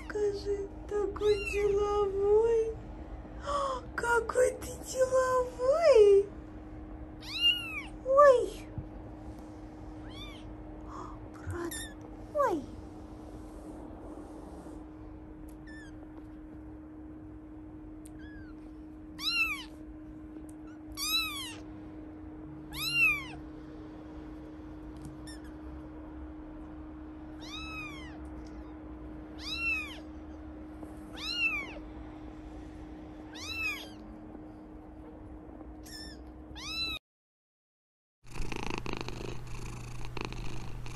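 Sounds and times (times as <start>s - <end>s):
steady low hum: 0.0s - 37.0s, 38.2s - 40.9s
kittens mewing: 7.2s - 8.0s, 10.0s - 12.7s, 18.1s - 18.6s, 19.2s - 19.8s, 20.6s - 21.7s, 22.7s - 23.4s, 27.4s - 28.8s, 29.4s - 30.1s, 31.1s - 31.8s, 33.3s - 34.0s, 35.8s - 37.0s.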